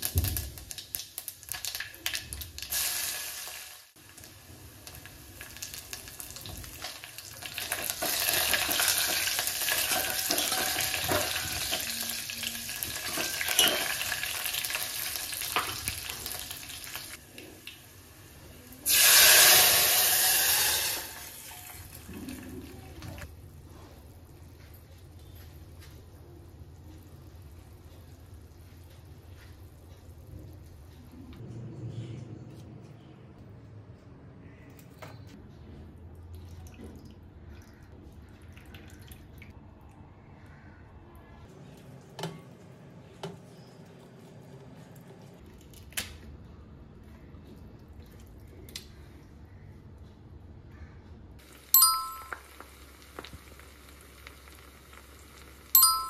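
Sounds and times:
bell-like ding: 0:51.8 - 0:52.5, 0:55.8 - 0:56.0.

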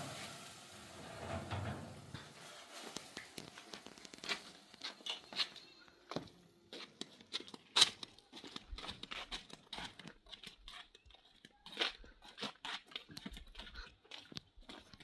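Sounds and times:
food sizzling in a pan: 0:00.0 - 0:03.4
footsteps: 0:00.0 - 0:15.0.

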